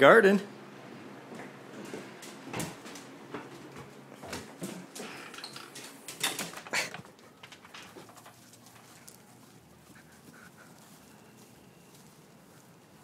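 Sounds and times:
footsteps and scuffs: 1.3 - 5.2, 7.9 - 13.0.

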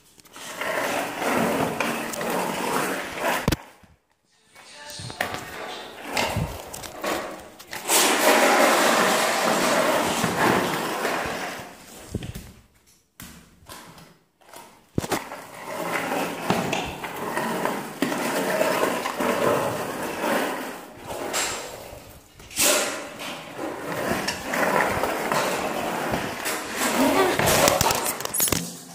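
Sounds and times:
skateboard wheels rolling on tiles: 0.0 - 28.9
skateboard clacking on tiles: 5.2 - 11.8, 22.8 - 28.9.

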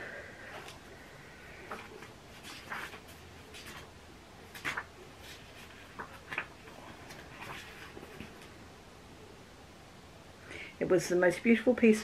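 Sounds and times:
book pages flicking: 1.7 - 8.5.

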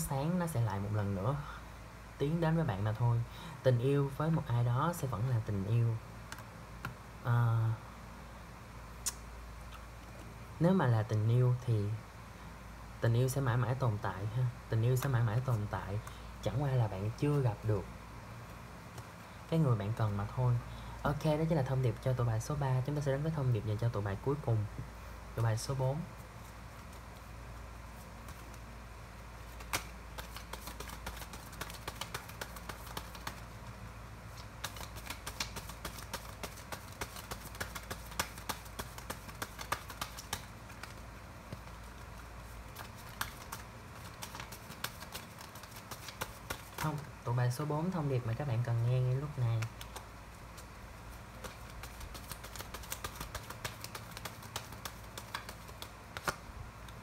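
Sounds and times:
cards being shuffled: 18.9 - 19.2, 27.9 - 28.7, 29.4 - 47.1, 49.2 - 57.0.

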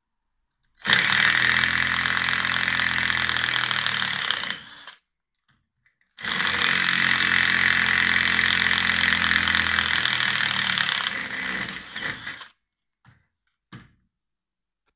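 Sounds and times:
impact driver hammering screw: 6.2 - 12.6.

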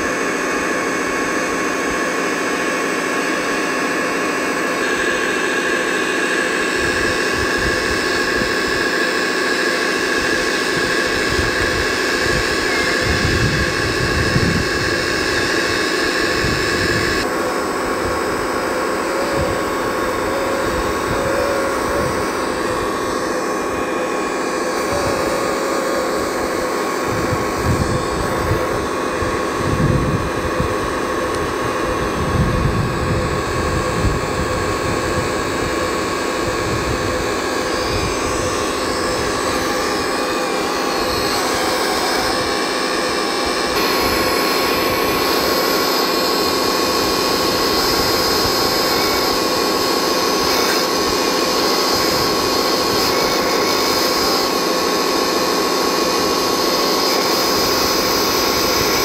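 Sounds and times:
hydraulic pump whining: 0.0 - 59.0
hiss: 43.7 - 59.0.

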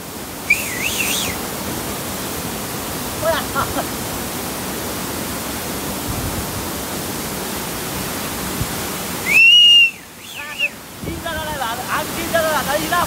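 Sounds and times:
mountain stream rushing: 0.0 - 13.0
loud whistle: 0.5 - 1.4, 9.2 - 10.7.

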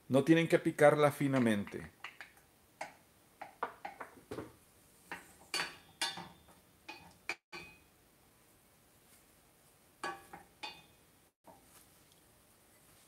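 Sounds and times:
wooden spoon knocking on saucepan: 2.8 - 7.8.

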